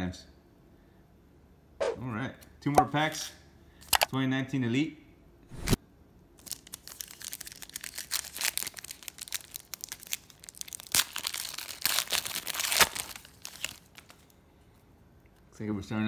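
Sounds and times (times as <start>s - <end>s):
foil wrapper tearing and crinkling: 6.4s - 14.3s.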